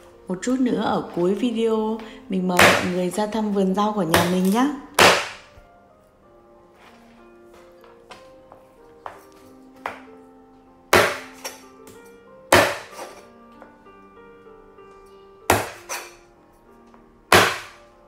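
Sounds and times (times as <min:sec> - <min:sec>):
cleaver chopping chicken: 0:04.1 - 0:05.4, 0:11.0 - 0:11.4, 0:12.5 - 0:13.2, 0:15.5 - 0:16.0, 0:17.3 - 0:17.8.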